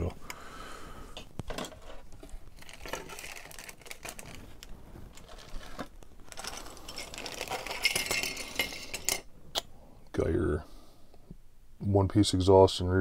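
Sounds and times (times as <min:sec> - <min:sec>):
plastic parts clicking and rattling: 0:01.4 - 0:09.2
plastic bag crinkling: 0:01.5 - 0:09.2.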